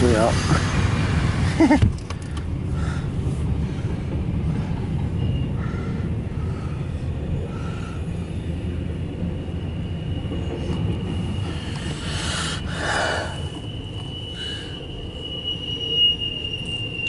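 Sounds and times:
freight train rumbling past: 0.0s - 17.0s
high squeal: 5.1s - 17.0s.

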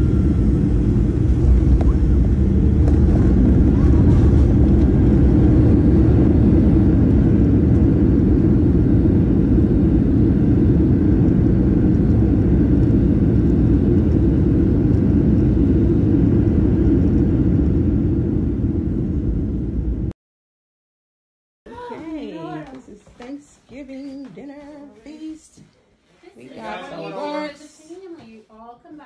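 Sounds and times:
jet engines and wheels rumbling: 0.0s - 20.1s.

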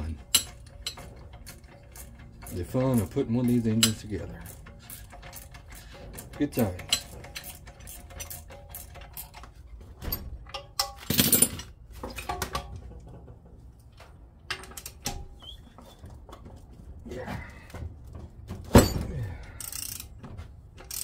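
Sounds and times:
metal tools clinking: 0.0s - 16.5s
metal scraping clatter: 0.0s - 16.7s.

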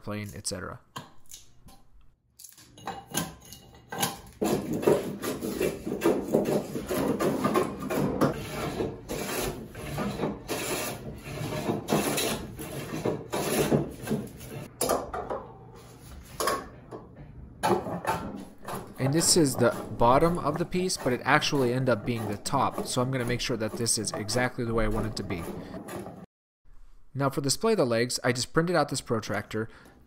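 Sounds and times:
hand plane shaving wood: 4.4s - 14.7s, 17.8s - 26.3s.

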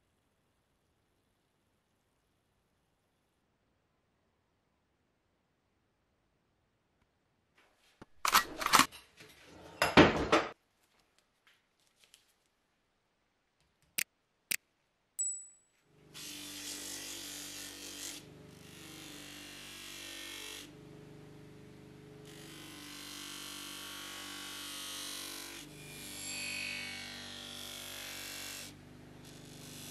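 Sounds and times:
knocks and rattles: 8.5s - 10.6s
bench grinder humming: 15.9s - 29.9s.

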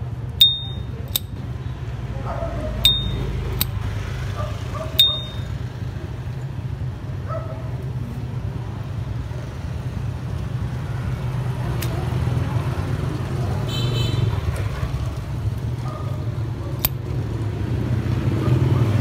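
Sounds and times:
lighter lid ringing cling: 0.4s - 1.3s, 2.9s - 3.8s, 5.0s - 5.5s.

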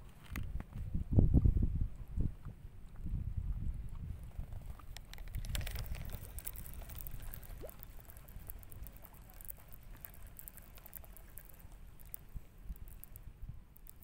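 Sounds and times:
wind rumbling on microphone: 0.0s - 14.0s
handling noise clicks and rustles: 4.8s - 14.0s.

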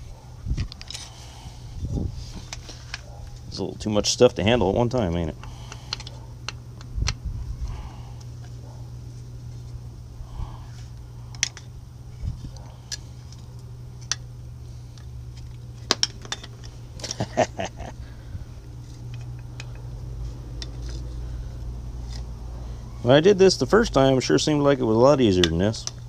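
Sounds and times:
metal brake parts clinking: 14.9s - 17.4s.

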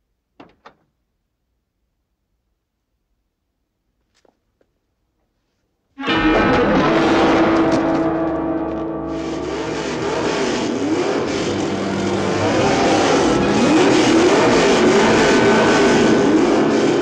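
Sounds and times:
car engine revving: 6.1s - 17.0s.

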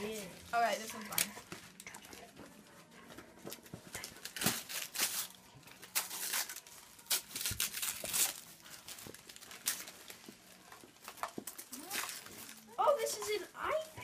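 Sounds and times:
wrapping paper crinkling and tearing: 0.0s - 2.3s, 3.9s - 14.0s.

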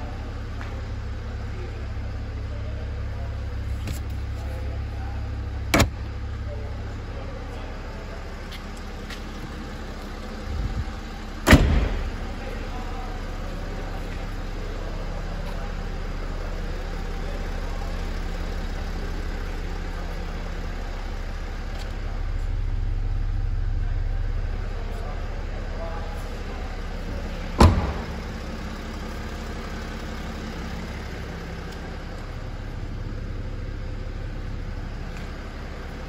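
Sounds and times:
steady low hum: 0.0s - 36.0s
car tailgate slamming: 5.7s - 6.0s, 11.4s - 12.1s, 27.6s - 28.3s.

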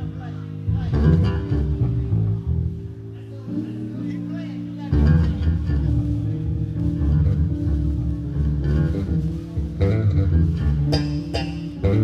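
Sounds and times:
blues band playing: 0.0s - 12.0s
electric bass line: 0.0s - 12.0s
electric guitar: 0.0s - 12.0s.

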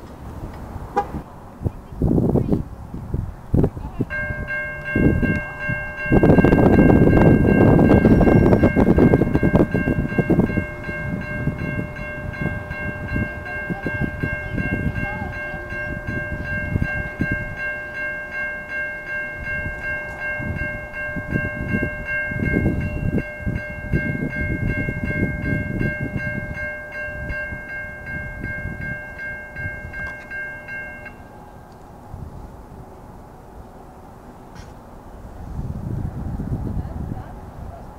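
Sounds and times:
railroad crossing bell ringing: 3.9s - 32.2s.

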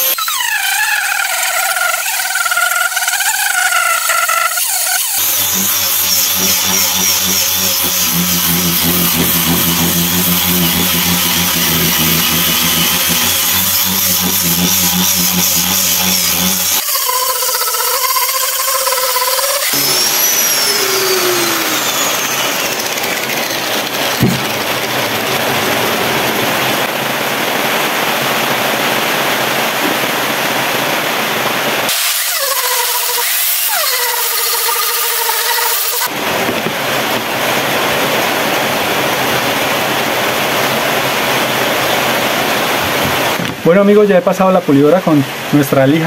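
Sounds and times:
angle grinder sanding wood: 0.0s - 25.9s, 31.9s - 36.1s
whine rising and falling: 0.0s - 33.2s.

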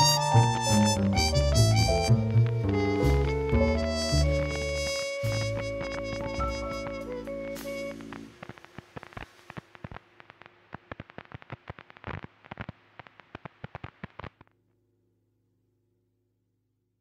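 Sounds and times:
crackling clicks: 4.2s - 14.5s.

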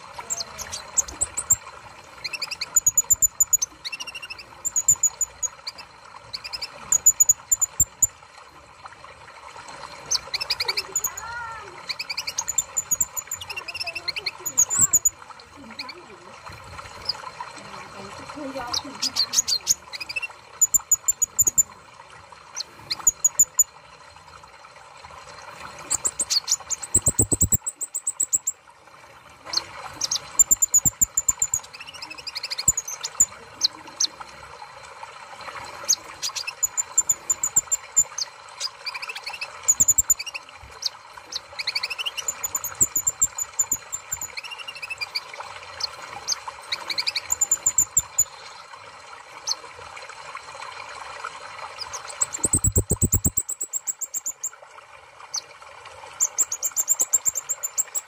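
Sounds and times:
sunbird chirping and twittering: 2.2s - 8.1s, 10.1s - 16.0s, 25.9s - 28.5s, 36.2s - 45.2s, 45.8s - 48.5s, 51.8s - 54.5s.

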